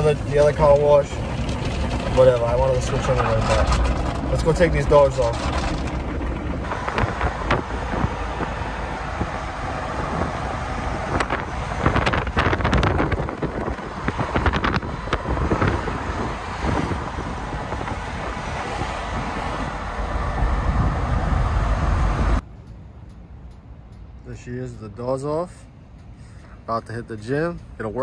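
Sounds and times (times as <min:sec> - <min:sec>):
wind buffeting microphone: 0:00.0 - 0:22.4
vehicle noise: 0:00.0 - 0:28.0.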